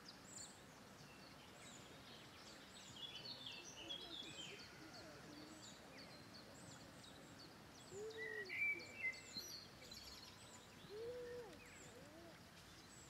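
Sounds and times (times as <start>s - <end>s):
low arching bird calls: 3.6s - 13.0s.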